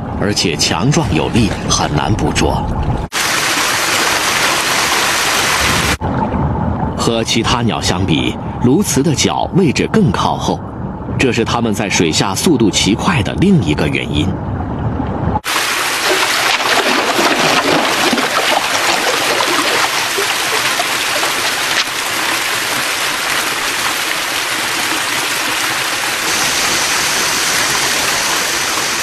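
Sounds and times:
river water rushing: 3.1 - 6.0, 15.4 - 29.0.

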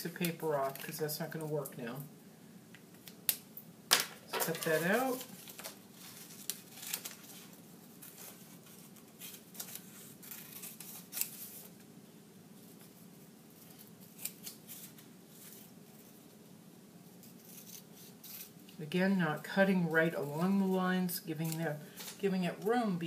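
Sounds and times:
scissors cutting paper: 8.0 - 11.7, 13.6 - 15.7, 17.2 - 18.6.

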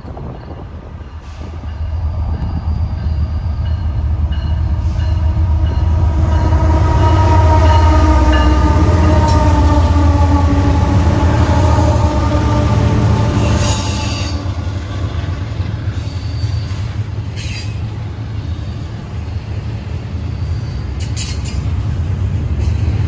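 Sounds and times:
diesel locomotive engine rumble: 0.0 - 23.0
steady droning tones: 1.7 - 15.2.

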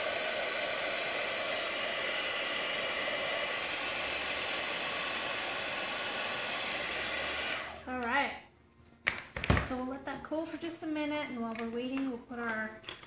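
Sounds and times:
heat gun fan whirring: 0.0 - 8.3.

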